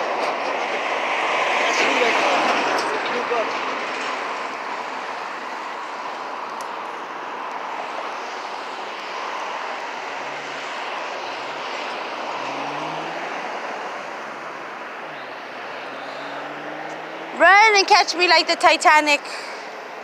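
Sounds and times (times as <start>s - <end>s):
road traffic: 0.0s - 20.0s
vehicle engine accelerating: 11.3s - 17.7s.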